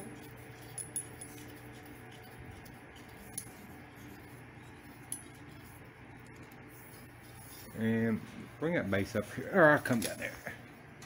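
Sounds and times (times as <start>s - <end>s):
metal tubes clinking: 0.0s - 5.8s
low background hum: 0.0s - 11.0s.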